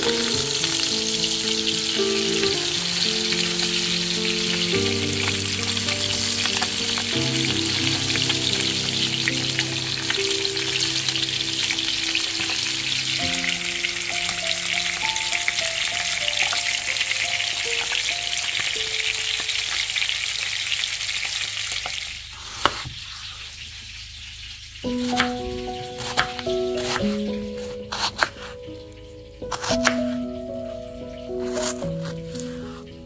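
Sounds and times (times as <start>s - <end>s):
background music: 0.0s - 19.3s, 24.9s - 33.0s
chicken frying in oil: 0.0s - 33.0s.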